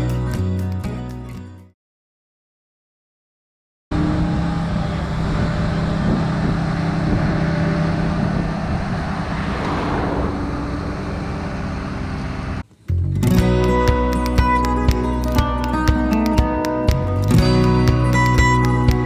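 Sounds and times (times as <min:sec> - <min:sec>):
diesel machinery running: 0:03.9 - 0:13.1.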